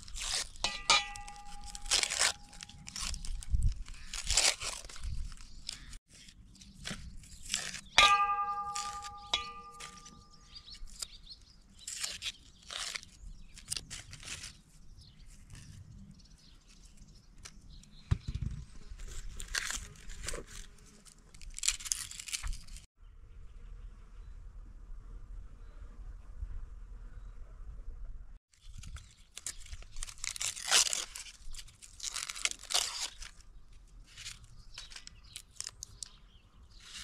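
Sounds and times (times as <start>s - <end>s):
onion skins tearing: 0.0s - 14.7s, 19.0s - 22.9s, 28.6s - 36.2s
knock with metallic ring: 8.0s - 10.2s.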